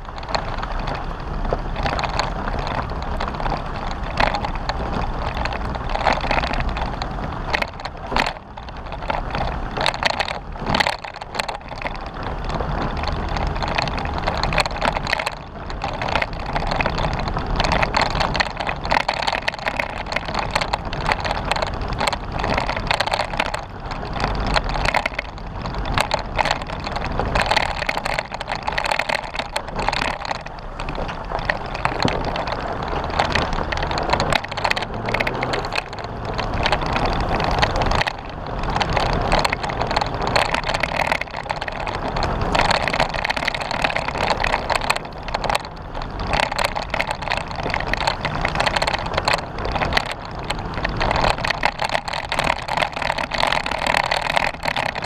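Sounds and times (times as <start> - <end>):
knocks and rattles: 0.0 - 55.0
off-road vehicle tyre noise: 0.0 - 55.0.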